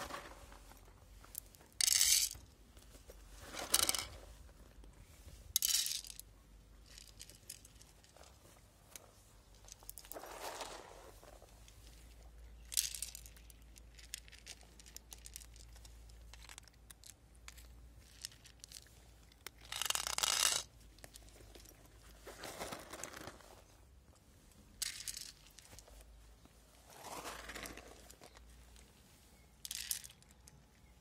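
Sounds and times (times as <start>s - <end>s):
cats crunching dry kibble: 12.8s - 23.5s, 27.0s - 28.4s.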